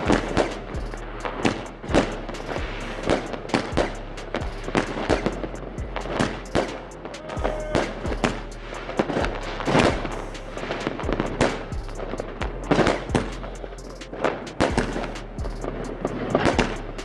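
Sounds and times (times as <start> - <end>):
fireworks crackling: 0.0 - 17.0
fireworks bangs: 6.0 - 12.1.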